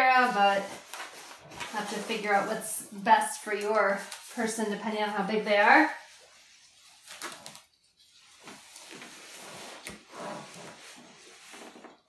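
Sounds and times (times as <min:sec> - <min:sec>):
fabric sling rustling: 0:05.7 - 0:12.0.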